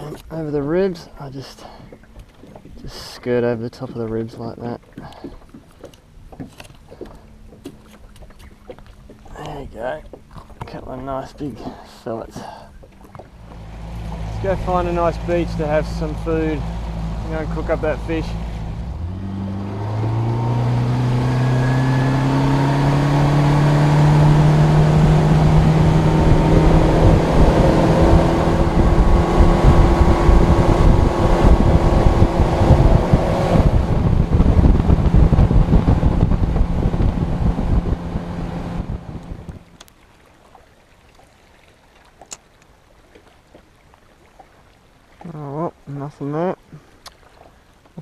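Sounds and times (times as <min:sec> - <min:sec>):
outboard motor running: 0:00.0 - 0:48.0
wind rumble on microphone: 0:13.1 - 0:39.8
faint clicks: 0:39.5 - 0:40.0.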